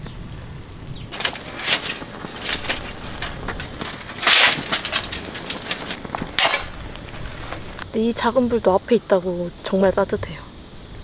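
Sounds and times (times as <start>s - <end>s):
charcoal crackling and popping: 1.1s - 8.0s.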